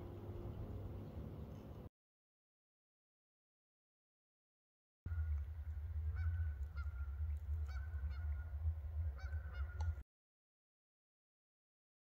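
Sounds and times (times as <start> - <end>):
steady low rumble: 0.0 - 1.9, 5.1 - 10.0
geese honking: 5.1 - 10.0.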